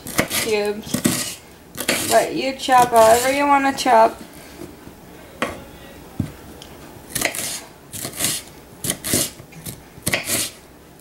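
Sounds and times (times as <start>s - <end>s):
knife chopping on wooden board: 7.2s - 9.4s, 10.0s - 10.5s.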